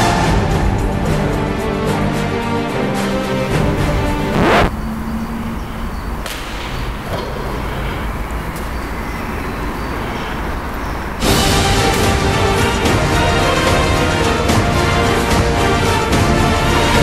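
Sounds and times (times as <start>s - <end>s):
music: 0.0s - 4.7s, 11.2s - 17.0s.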